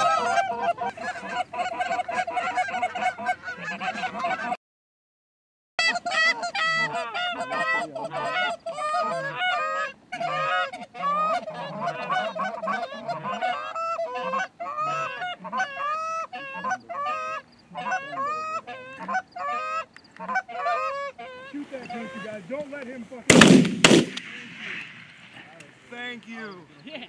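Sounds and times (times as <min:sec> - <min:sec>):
goose calls honking: 0:00.0 - 0:04.6, 0:05.8 - 0:22.5.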